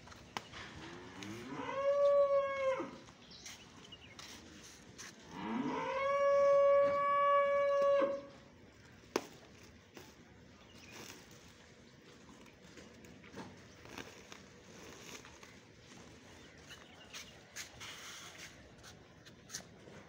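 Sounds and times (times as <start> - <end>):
cow mooing: 0.8 - 3.0, 5.3 - 8.3.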